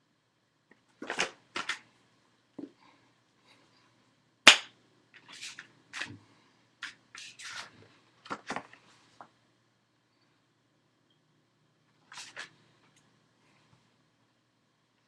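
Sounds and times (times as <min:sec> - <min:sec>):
sharp slap: 0:04.5 - 0:04.7.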